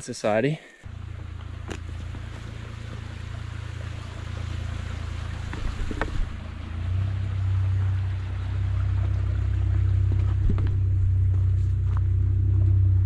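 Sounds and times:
footsteps on log footbridge: 0:09.8 - 0:12.8.

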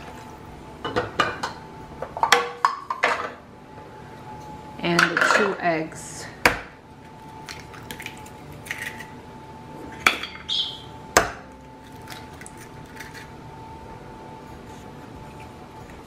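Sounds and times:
eggs cracking: 0:07.1 - 0:09.2, 0:11.8 - 0:13.3.

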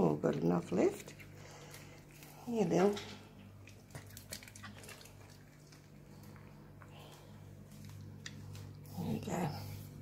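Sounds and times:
low steady hum: 0:00.0 - 0:10.0
dog chewing and smacking: 0:03.3 - 0:06.9.

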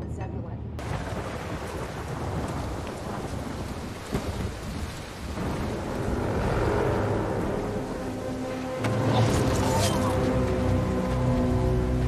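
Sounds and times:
heavy rain pouring: 0:00.8 - 0:12.0
low sustained music tones: 0:05.4 - 0:12.0.

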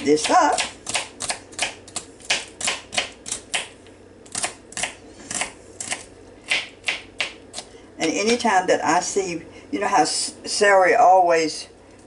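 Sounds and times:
knife chopping celery on board: 0:00.0 - 0:03.7, 0:04.3 - 0:08.4.

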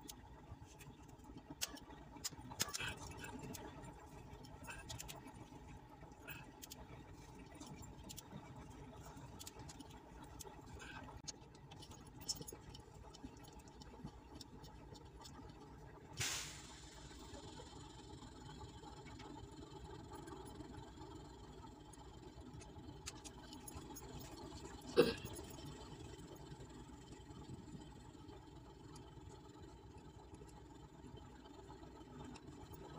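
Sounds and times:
low steady hum: 0:00.0 - 0:32.9.

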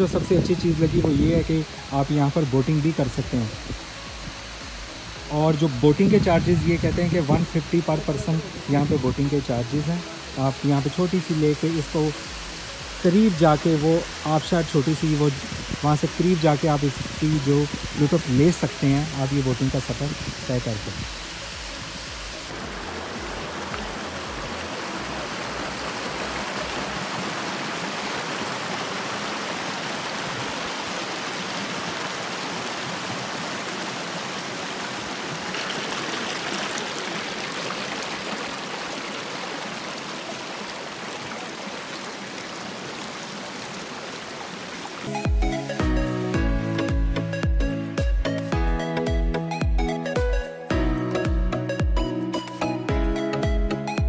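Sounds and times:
stream flowing over rocks: 0:00.0 - 0:47.1.

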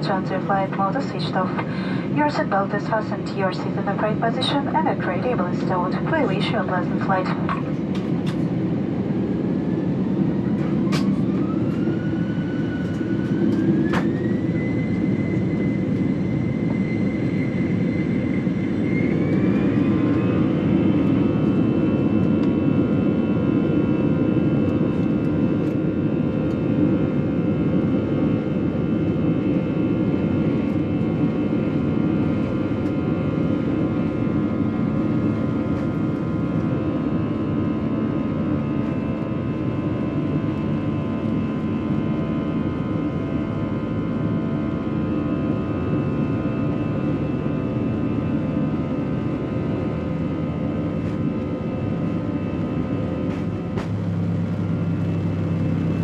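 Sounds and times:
jet engines spooling up: 0:00.0 - 0:22.8.

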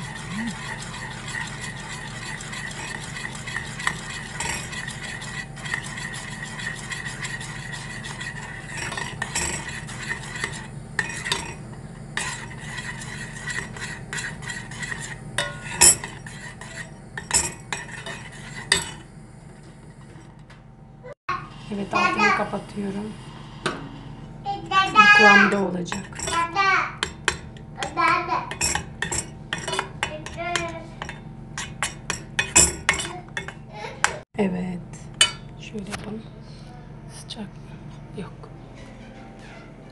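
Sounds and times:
spoon scraping metal pot: 0:00.0 - 0:19.1, 0:21.4 - 0:34.2
spoon stirring porridge in pot: 0:00.0 - 0:20.4, 0:23.4 - 0:34.2.

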